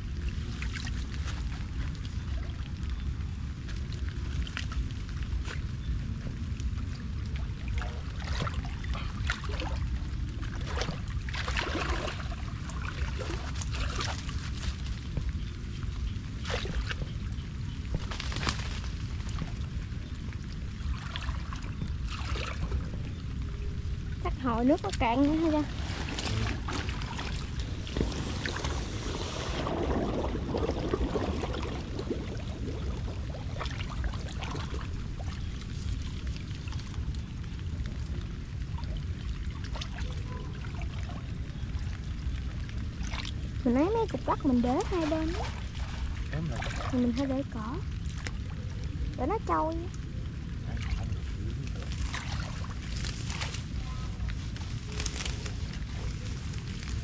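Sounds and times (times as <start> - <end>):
shallow water splashing: 0.0 - 57.0
steady low rumble: 0.0 - 57.0
hiss of water: 27.7 - 33.2.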